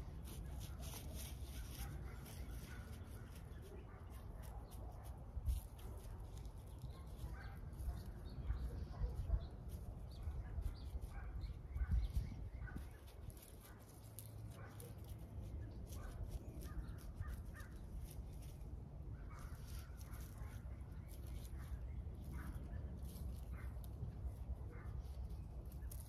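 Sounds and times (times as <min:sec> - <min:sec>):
soil rustling: 0:00.0 - 0:08.8, 0:09.4 - 0:26.0
birds calling: 0:06.0 - 0:18.6.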